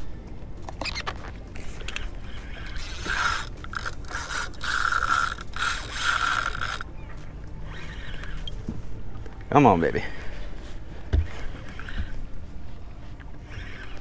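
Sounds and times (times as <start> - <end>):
fishing reel ratcheting whir: 0.7 - 6.9, 7.6 - 8.5, 11.7 - 12.2, 13.4 - 14.0.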